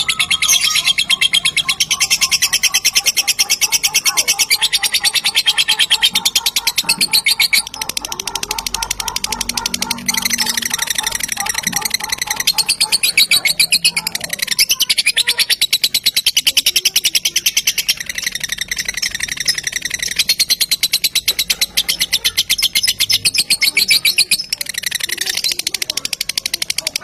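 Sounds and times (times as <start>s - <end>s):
lovebird trilling: 0.0s - 27.0s.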